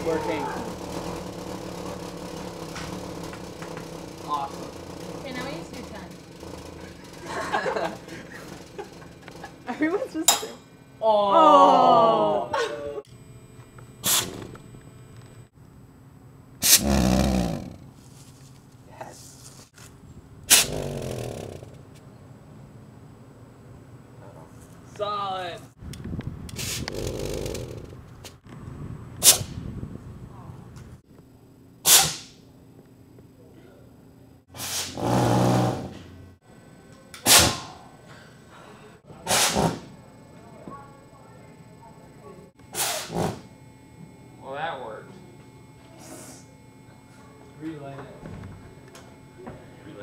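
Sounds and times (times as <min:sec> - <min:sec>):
low hum from jar: 0:00.0 - 0:22.3
faint puff: 0:14.0 - 0:14.4, 0:16.6 - 0:17.8, 0:31.9 - 0:32.3, 0:34.6 - 0:35.3, 0:39.3 - 0:39.8, 0:42.8 - 0:43.4
fuel vapour igniting with whoosh: 0:16.6 - 0:17.8, 0:34.6 - 0:36.0.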